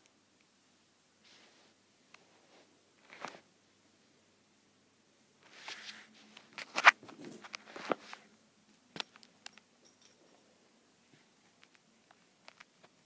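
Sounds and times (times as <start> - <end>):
rustling against fabric: 1.2 - 3.5, 5.4 - 8.3.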